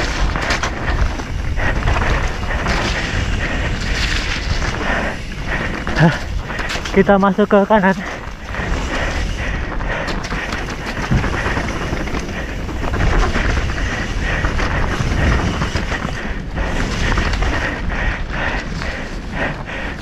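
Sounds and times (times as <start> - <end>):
bike rattling and knocking: 0.0 - 20.0
bike tyres rolling: 0.0 - 20.0
wind on microphone: 8.1 - 20.0.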